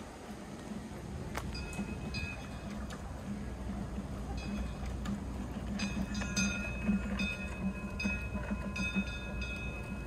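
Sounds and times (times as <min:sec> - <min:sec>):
low steady hum: 0:00.0 - 0:10.0
metal chimes ringing: 0:01.5 - 0:02.8, 0:04.3 - 0:05.0, 0:05.6 - 0:10.0.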